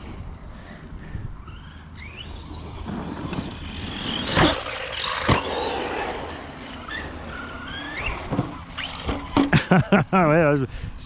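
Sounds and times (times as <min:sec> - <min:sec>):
electric motor whining: 0:01.4 - 0:09.5.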